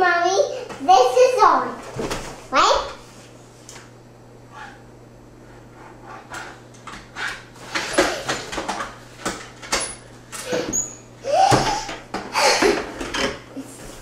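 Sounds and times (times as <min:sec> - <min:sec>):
young child laughing: 0:10.5 - 0:13.8.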